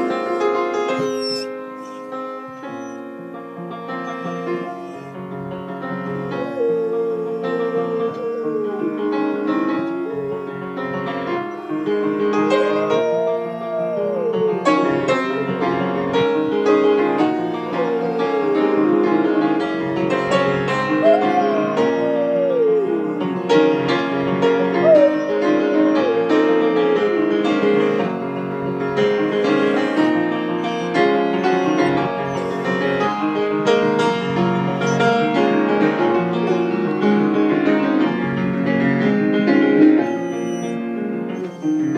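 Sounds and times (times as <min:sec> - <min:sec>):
dog howling: 0:00.0 - 0:03.1, 0:04.0 - 0:05.2, 0:06.1 - 0:28.3, 0:29.0 - 0:34.0, 0:34.7 - 0:35.4, 0:39.6 - 0:41.9
piano playing: 0:00.0 - 0:41.9.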